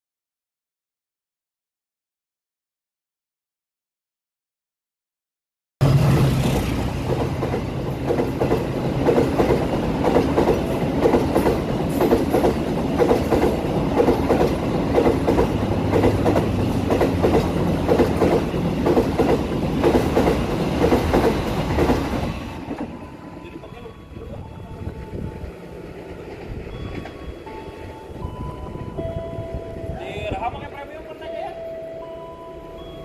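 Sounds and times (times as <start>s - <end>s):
locomotive low drone: 5.8s - 11.0s
train wheels clacking over rail joints: 5.8s - 23.0s.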